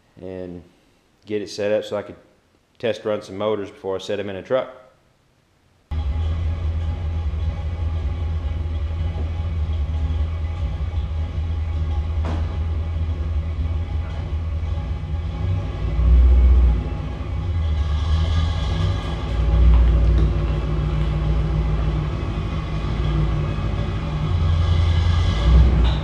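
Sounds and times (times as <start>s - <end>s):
truck engine idling: 5.9s - 26.0s.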